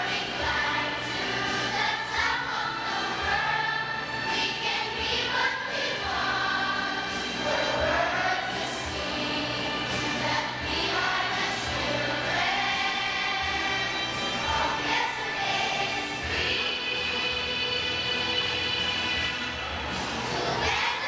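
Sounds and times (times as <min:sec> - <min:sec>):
children's choir singing: 0:00.0 - 0:21.0.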